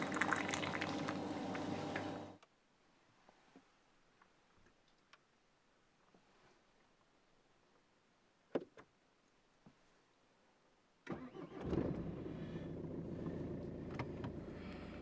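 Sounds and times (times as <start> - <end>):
car engine starting and idling: 11.1 - 15.0.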